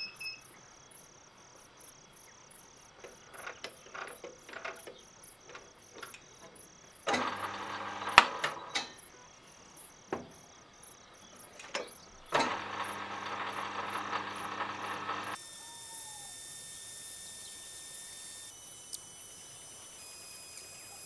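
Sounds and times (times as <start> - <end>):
cricket chirping: 0.0 - 21.0
lathe motor humming: 7.1 - 8.7, 12.3 - 21.0
sharp metallic clanks: 7.1 - 9.1.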